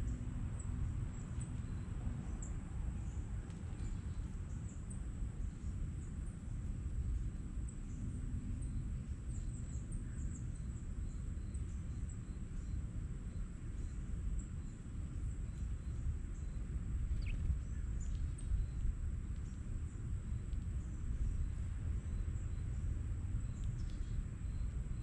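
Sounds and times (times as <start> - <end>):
low outdoor rumble: 0.0 - 25.0
small birds chirping: 7.1 - 25.0.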